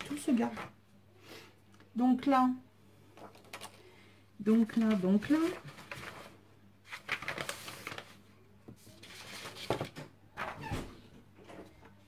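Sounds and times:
paper sheets rustling: 4.6 - 10.1.

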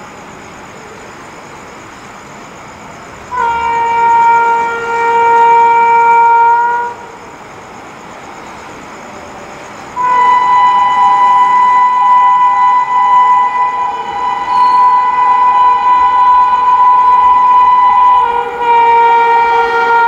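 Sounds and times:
train air horn: 3.3 - 7.2, 10.0 - 20.0.

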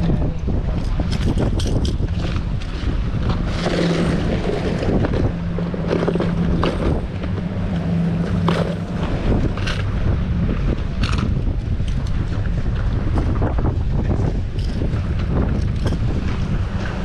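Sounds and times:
low motor hum: 0.0 - 17.0
wind buffeting microphone: 0.0 - 17.0.

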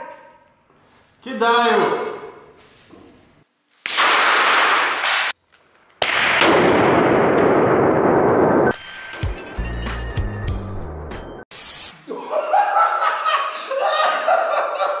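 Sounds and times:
firecracker blasts: 3.9 - 5.4.

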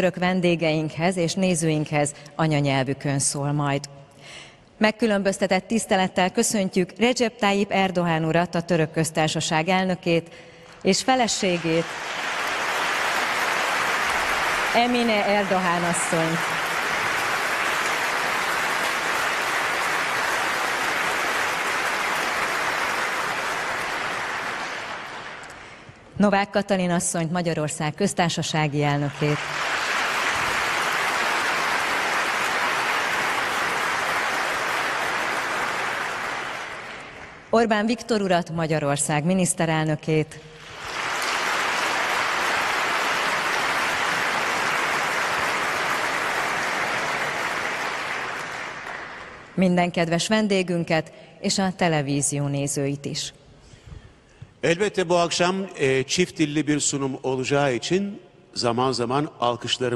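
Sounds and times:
audience applauding: 11.1 - 25.9, 29.0 - 37.5, 40.6 - 49.6.

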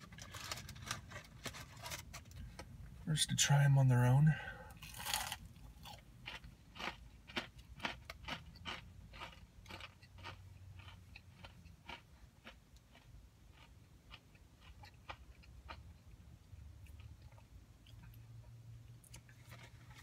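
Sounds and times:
person crunching fried chicken: 4.7 - 18.2.

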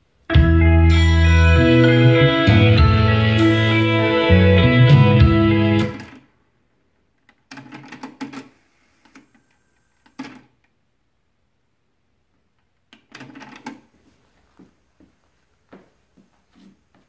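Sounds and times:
music from tape: 0.3 - 6.2.

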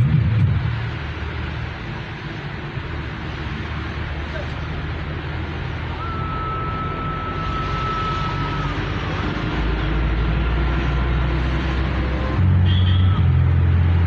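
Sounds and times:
tyre hiss on wet road: 0.0 - 14.0
faint high whine: 5.9 - 9.3.

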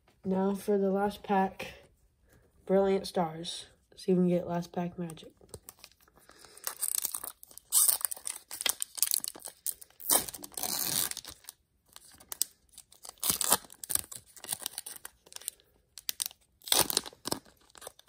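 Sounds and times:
foil wrapper tearing and crinkling: 5.6 - 18.0.

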